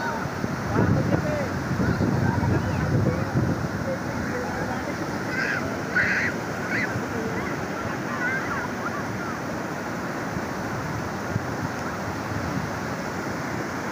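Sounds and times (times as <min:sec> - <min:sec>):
ocean surf washing on beach: 0:00.0 - 0:13.9
wind on microphone: 0:00.0 - 0:13.9
faint children calling: 0:05.0 - 0:09.5
child shrieking: 0:05.2 - 0:09.4.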